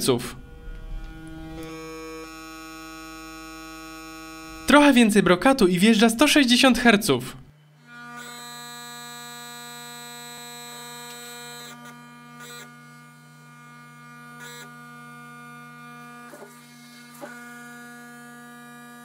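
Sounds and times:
buzzy test tone hum: 0:00.0 - 0:07.9.

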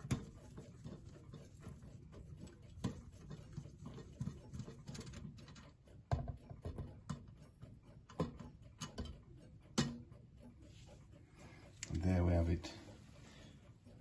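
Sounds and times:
small metallic clicks and taps: 0:02.7 - 0:10.6.

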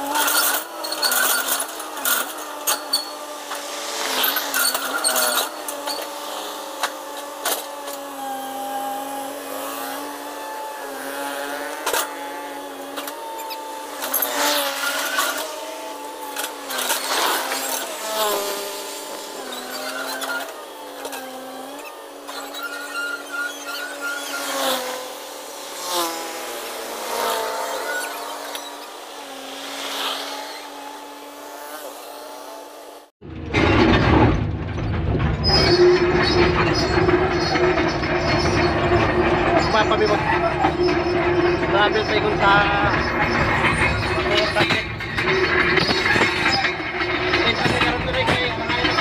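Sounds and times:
excavator engine whining drone: 0:00.0 - 0:49.0
metal clanks and knocks: 0:33.2 - 0:49.0.

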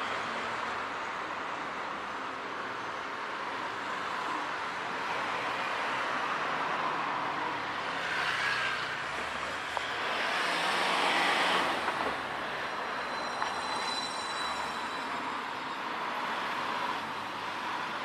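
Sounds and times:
cars driving past: 0:05.2 - 0:15.3.

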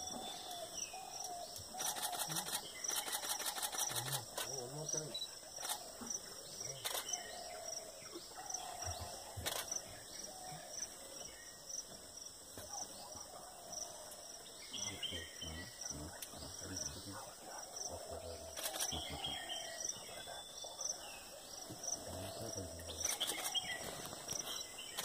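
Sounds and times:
constant high hiss: 0:00.0 - 0:25.0
insects chirping: 0:00.0 - 0:25.0
sharp clicks: 0:01.2 - 0:04.6, 0:05.6 - 0:05.8, 0:06.8 - 0:07.2, 0:18.5 - 0:19.0, 0:23.0 - 0:23.7.

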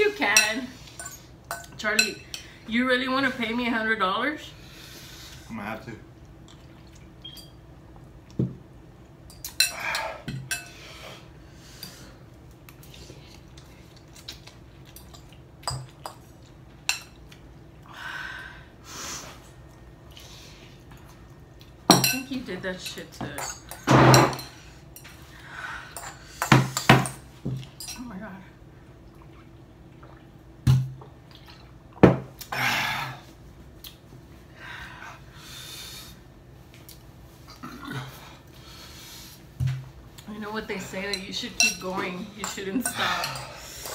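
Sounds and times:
forks clinking on bowls: 0:41.1 - 0:43.5.

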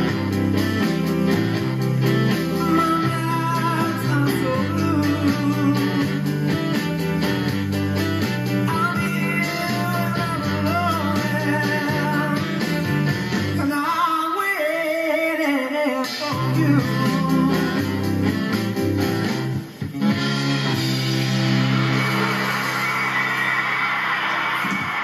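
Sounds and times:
small band playing: 0:00.0 - 0:14.2, 0:15.9 - 0:25.0
man singing with vibrato: 0:02.5 - 0:06.4, 0:08.6 - 0:13.0, 0:13.6 - 0:18.3.

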